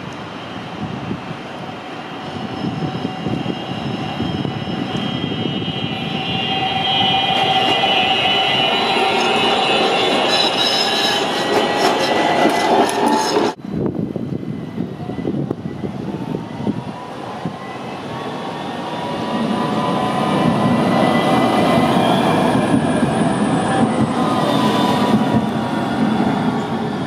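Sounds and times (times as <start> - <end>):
tram wheel and rail noise: 0.0 - 27.0.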